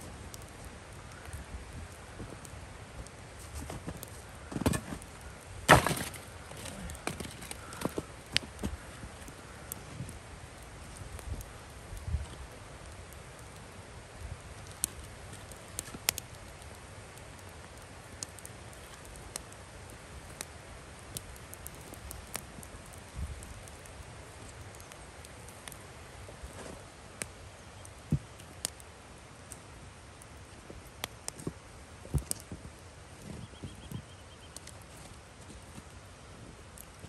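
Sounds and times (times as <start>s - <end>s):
wood fire crackling: 0.0s - 37.0s
firewood knocking: 5.7s - 9.2s.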